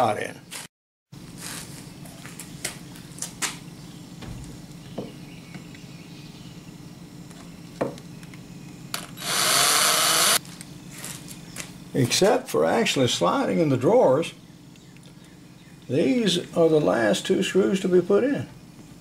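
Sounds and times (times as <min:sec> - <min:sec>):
cordless drill driving a screw: 0:09.2 - 0:10.4.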